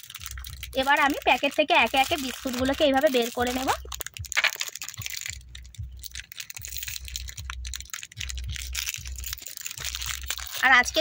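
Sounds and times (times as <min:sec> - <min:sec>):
plastic wrappers crinkling: 0:00.0 - 0:11.0.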